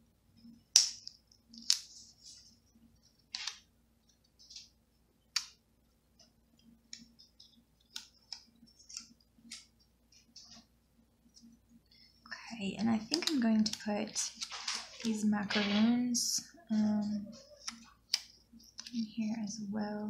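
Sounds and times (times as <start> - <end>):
paper clicks and crinkles: 1.0 - 4.7, 6.9 - 10.7, 12.8 - 16.1.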